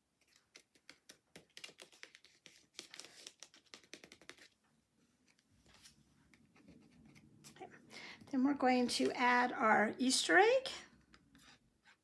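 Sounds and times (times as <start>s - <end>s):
fingers tapping and rubbing card: 0.2s - 4.6s.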